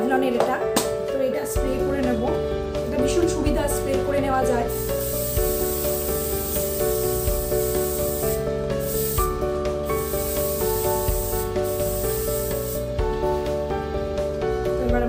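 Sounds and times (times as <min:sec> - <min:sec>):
background music: 0:00.0 - 0:15.0
aerosol spray hissing: 0:04.7 - 0:13.0.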